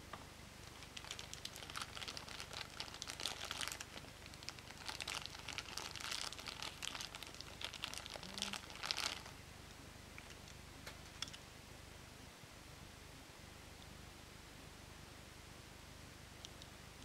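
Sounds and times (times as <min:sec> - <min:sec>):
plastic bag crinkling: 0:00.6 - 0:09.4.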